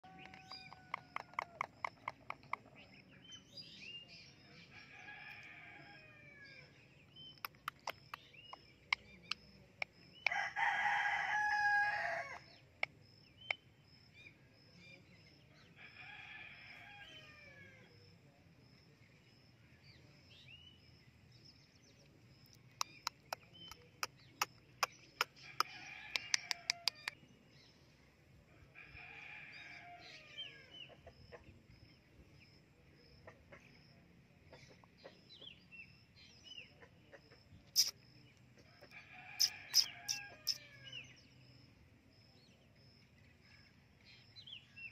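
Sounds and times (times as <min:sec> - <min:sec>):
sharp clicks: 0:07.3 - 0:09.9.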